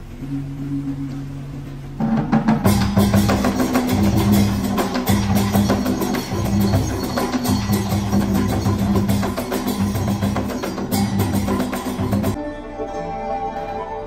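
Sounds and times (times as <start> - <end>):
drums and wood blocks: 0.0 - 12.4
held low notes: 0.0 - 12.4.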